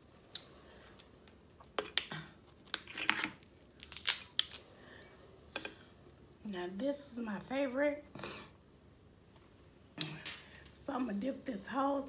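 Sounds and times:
crab shell cracking: 0:01.2 - 0:04.8.

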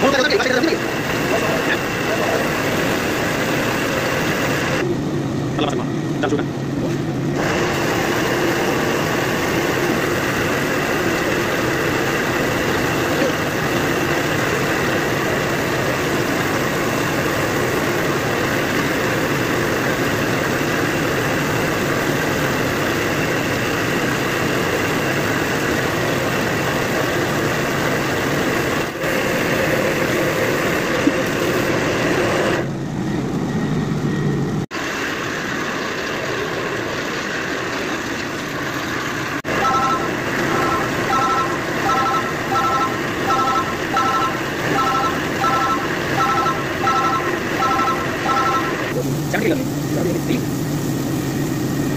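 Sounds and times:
machine drone: 0:00.0 - 0:51.9
short electronic beeps: 0:39.6 - 0:48.9.

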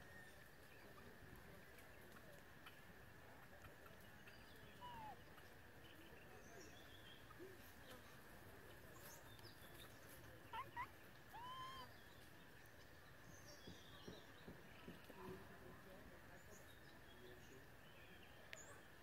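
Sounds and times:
high whistled animal calls: 0:10.5 - 0:11.9.

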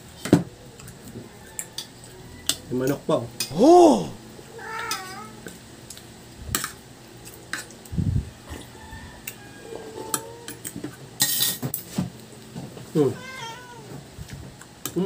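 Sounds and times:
cutlery clinking on ceramic plates: 0:10.0 - 0:11.8.

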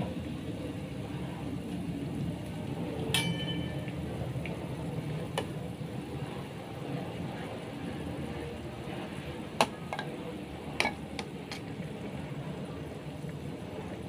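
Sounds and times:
soup bubbling in a wok: 0:00.0 - 0:14.0
metal spatula clinking on wok: 0:03.2 - 0:03.8.

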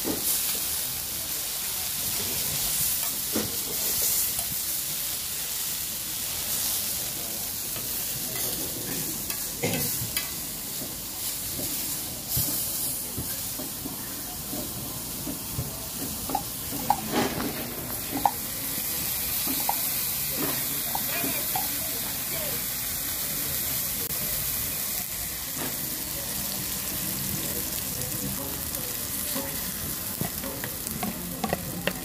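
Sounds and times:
tomato slices sizzling in oil: 0:00.0 - 0:32.0
metal spoon scraping and tapping pan: 0:30.3 - 0:32.0.

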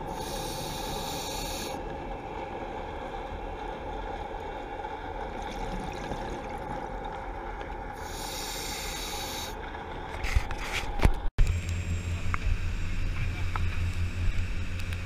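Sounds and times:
breath hissing through regulator: 0:00.0 - 0:01.8, 0:08.0 - 0:09.6.

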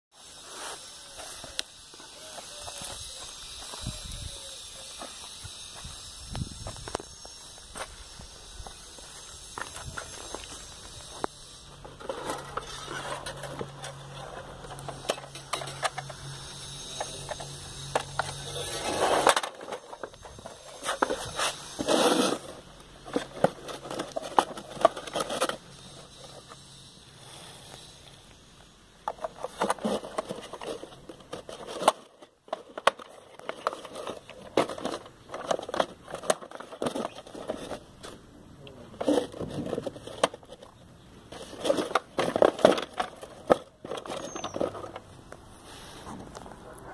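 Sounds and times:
plastic toy clicking and rattling: 0:29.1 - 0:37.8.

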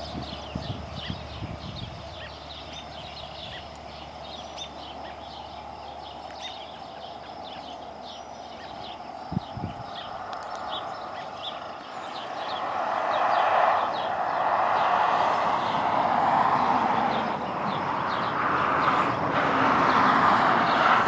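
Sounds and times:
small birds chirping: 0:00.0 - 0:16.0, 0:16.6 - 0:19.2
steady outdoor hiss: 0:00.0 - 0:21.0.

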